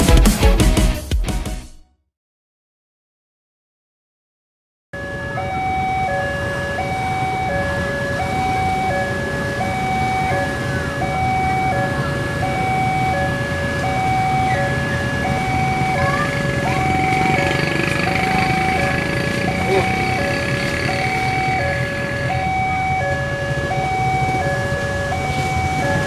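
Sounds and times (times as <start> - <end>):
railroad crossing alarm: 5.0 - 26.0
motorcycle engines rumbling: 5.6 - 26.0.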